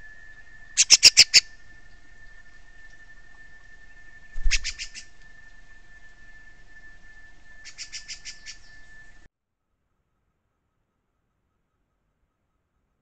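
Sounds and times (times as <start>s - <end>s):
steady thin whine: 0.0s - 9.3s
thrush sharp clicky calls: 0.8s - 1.6s, 4.4s - 5.5s, 7.6s - 8.7s.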